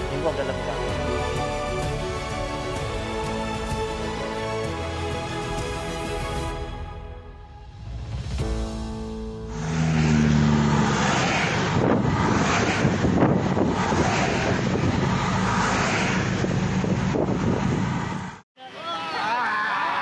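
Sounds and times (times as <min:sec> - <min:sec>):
trucks driving past: 0:07.7 - 0:18.4.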